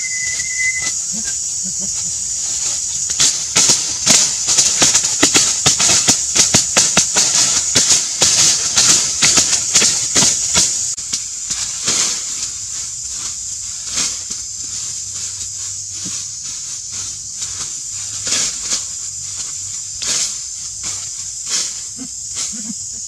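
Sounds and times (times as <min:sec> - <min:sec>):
hoes scraping dry soil: 0:00.0 - 0:22.9
high-pitched hiss: 0:00.0 - 0:23.0.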